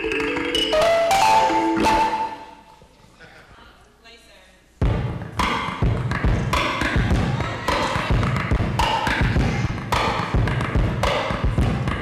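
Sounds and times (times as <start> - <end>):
kalimba tines ringing: 0.0 - 2.7
low rhythmic thumps: 0.0 - 2.9, 4.8 - 12.0.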